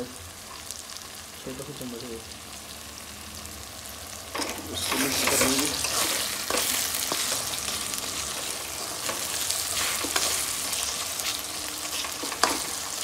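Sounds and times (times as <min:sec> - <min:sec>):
vegetables sizzling in hot oil: 0:00.0 - 0:13.0
metal spoon scraping a pan: 0:04.4 - 0:13.0.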